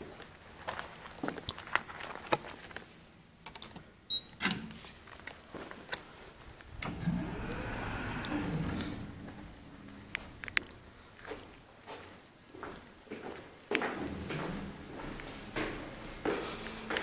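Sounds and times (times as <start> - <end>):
card reader beep: 4.1 - 4.4
sliding door motor: 6.4 - 11.4, 14.0 - 17.0.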